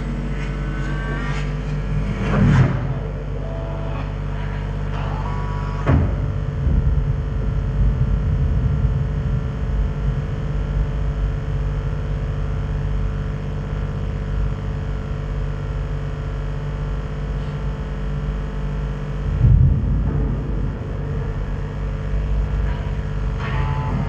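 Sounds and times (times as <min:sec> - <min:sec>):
crackling rumble: 0:00.0 - 0:05.0, 0:05.9 - 0:24.0
sudden electronic hit: 0:00.0 - 0:11.5, 0:18.8 - 0:24.0
low rumbling drone: 0:00.0 - 0:24.0.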